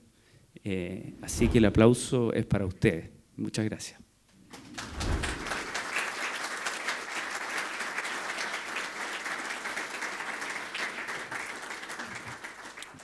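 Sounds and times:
audience applauding: 0:04.5 - 0:13.0.

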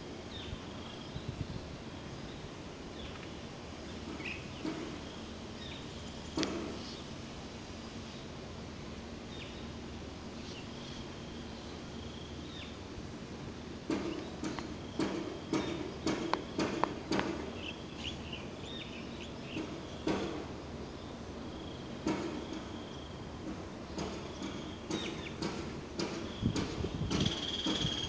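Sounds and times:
steady low hum: 0:00.0 - 0:28.0
sharp clicks and knocks: 0:04.0 - 0:05.0, 0:06.3 - 0:06.9, 0:13.9 - 0:17.7, 0:19.5 - 0:20.6, 0:22.0 - 0:22.7, 0:23.4 - 0:28.0.

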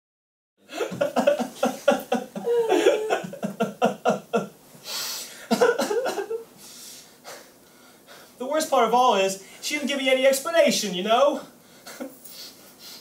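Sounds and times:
man sobbing: 0:00.7 - 0:04.5, 0:05.3 - 0:06.4
man wailing: 0:02.1 - 0:03.6.

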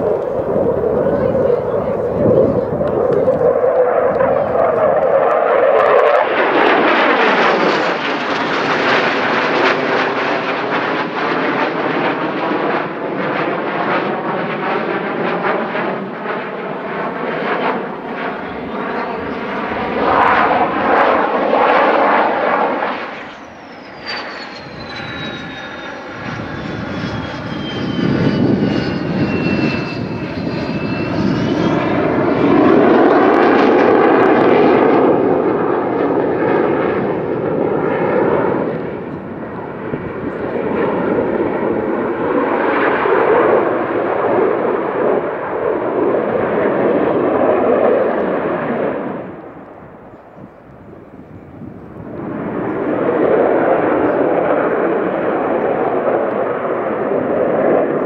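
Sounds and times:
airplane engine flying past: 0:00.0 - 0:58.0
high whine sliding in pitch: 0:18.4 - 0:34.5.

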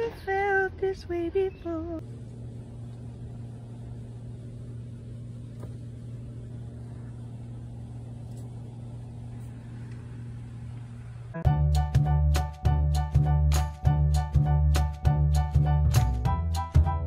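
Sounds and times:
faint rumble: 0:00.0 - 0:11.5
low hum: 0:00.0 - 0:12.3.

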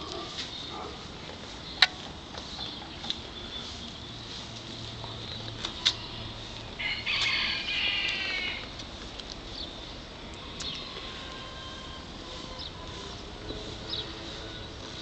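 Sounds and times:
faint chirps and clicks: 0:01.7 - 0:03.2
drawn-out animal call: 0:05.7 - 0:08.7, 0:10.2 - 0:15.0.

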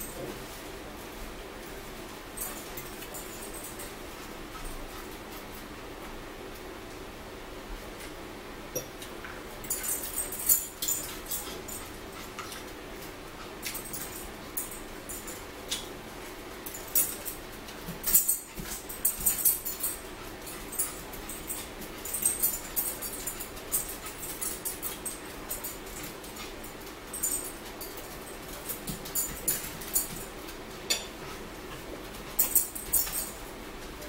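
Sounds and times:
forks clinking on plates: 0:16.6 - 0:30.3, 0:30.9 - 0:31.2, 0:32.3 - 0:33.4.

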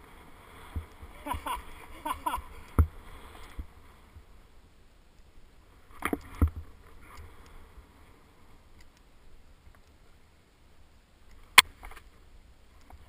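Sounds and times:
skis swishing through powder snow: 0:00.0 - 0:04.5.

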